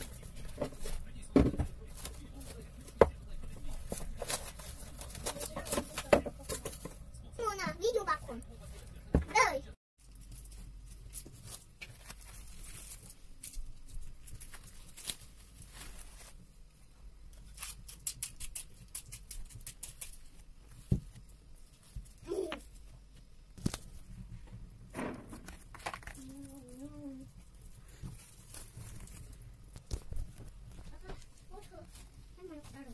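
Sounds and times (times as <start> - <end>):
cling film crinkling: 0.0 - 6.8, 10.0 - 16.7, 25.4 - 32.9.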